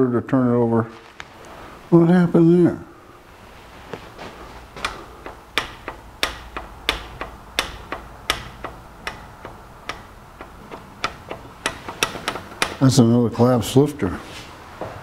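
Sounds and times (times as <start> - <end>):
rocker arm metallic clicks: 4.8 - 12.9.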